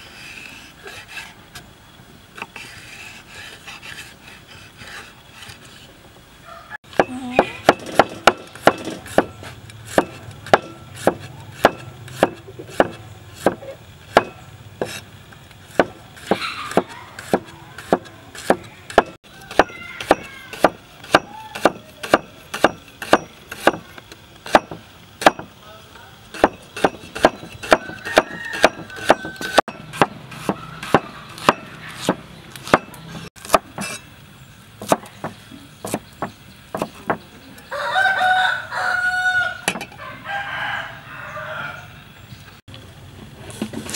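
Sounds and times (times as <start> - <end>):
cleaver chopping on wooden board: 7.0 - 9.3, 9.9 - 15.0, 15.7 - 23.9, 24.5 - 25.5, 26.4 - 34.0, 34.8 - 37.2.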